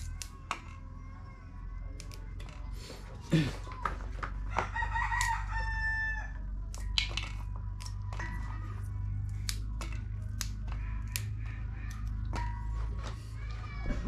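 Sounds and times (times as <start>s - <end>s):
beans snapping by hand: 0.0s - 0.9s, 1.8s - 2.9s, 3.6s - 5.7s, 6.4s - 13.4s
rooster crowing: 4.4s - 6.5s
steady low hum: 6.2s - 14.0s.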